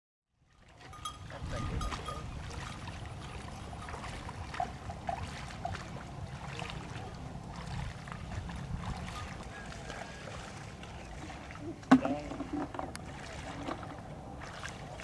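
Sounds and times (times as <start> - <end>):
water splashing and sloshing: 0.3 - 15.0
wind rumble on microphone: 0.8 - 9.9.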